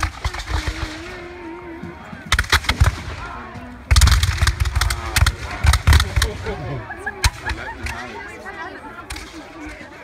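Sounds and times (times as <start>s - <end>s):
musket shots: 0.0s - 1.2s, 2.3s - 6.6s.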